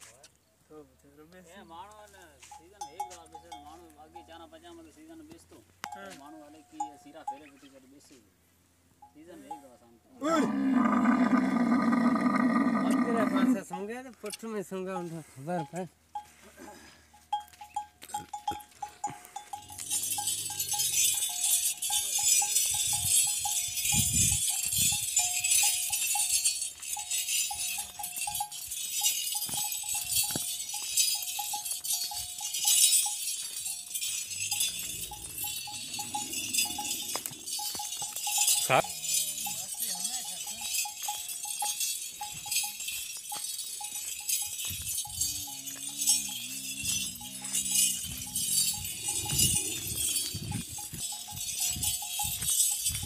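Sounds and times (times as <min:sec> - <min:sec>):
camel bells jingling: 0:01.2 - 0:53.0
faint pulsing ringing tone: 0:15.6 - 0:53.0.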